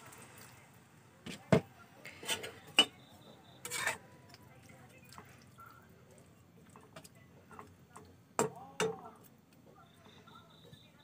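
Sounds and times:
stirring curry: 0.0s - 9.8s
spatula scraping wok: 1.3s - 4.2s.

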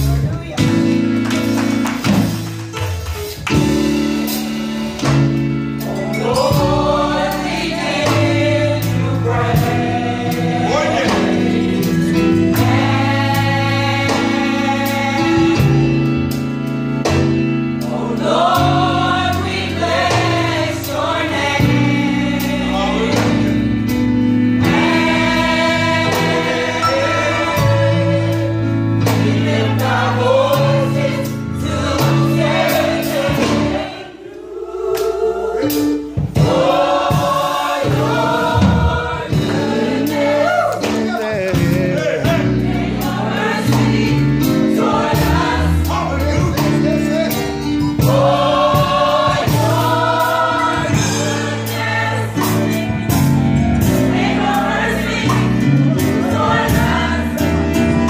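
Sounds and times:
low instrumental chords: 0.0s - 58.0s
women's choir singing: 5.9s - 16.0s, 17.8s - 23.8s, 24.6s - 40.8s, 42.2s - 46.1s, 48.0s - 58.0s.

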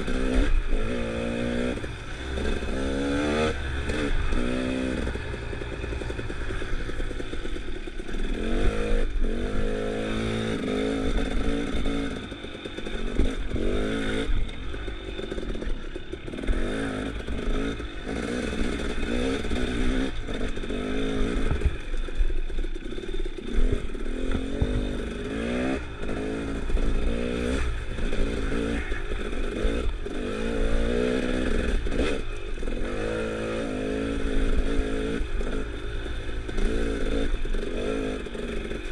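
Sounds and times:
dirt bike engine revving: 0.0s - 21.8s, 22.6s - 38.9s.

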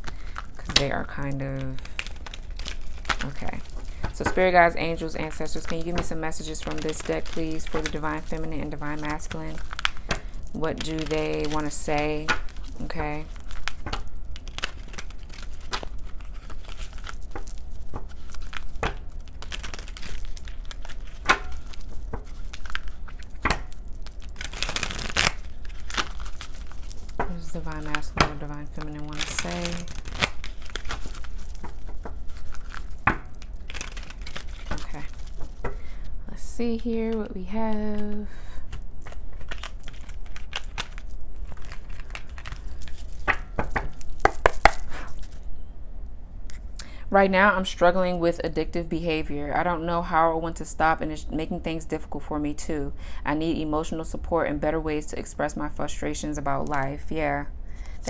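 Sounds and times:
cards being shuffled: 0.0s - 36.0s, 37.8s - 45.4s.

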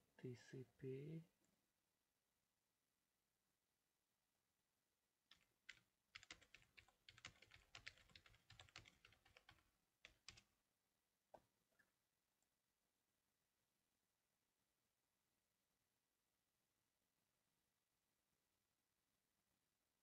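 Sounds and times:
typing on computer keyboard: 5.3s - 10.5s.

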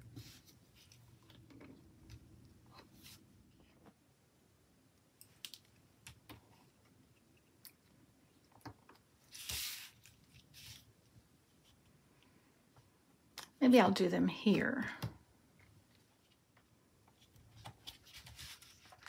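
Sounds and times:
paper rustling: 9.2s - 10.9s, 17.2s - 19.0s.

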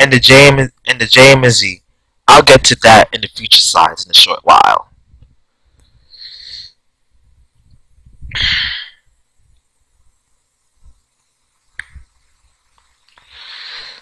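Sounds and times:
man breathing into microphone: 13.2s - 14.0s.

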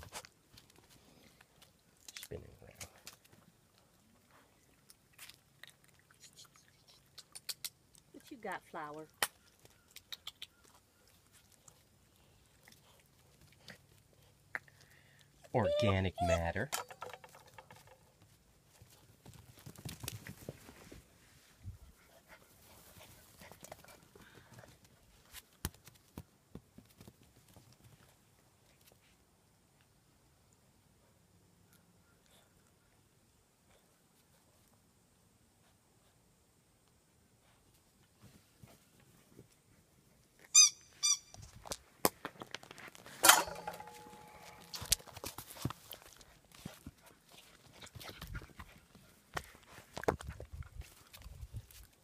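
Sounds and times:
puppy paws pattering on concrete: 0.0s - 15.2s, 17.2s - 21.1s, 22.4s - 29.2s, 37.6s - 52.0s
puppy squeaks: 15.6s - 17.0s, 40.6s - 41.4s
metal bowl clattering and ringing: 43.2s - 44.8s.

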